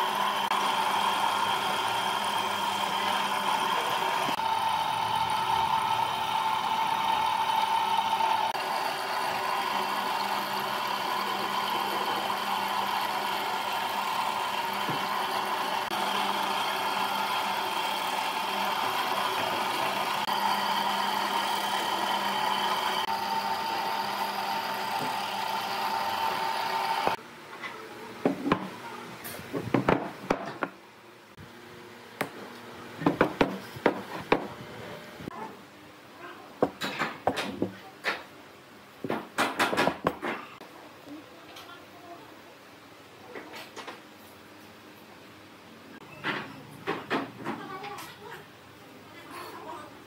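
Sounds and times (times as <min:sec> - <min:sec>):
wood lathe humming: 0:00.0 - 0:27.2.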